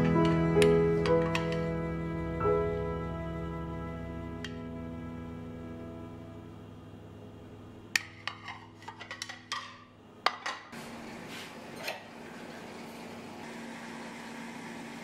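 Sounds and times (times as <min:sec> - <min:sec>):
ceramic plates clinking: 0:08.0 - 0:10.8.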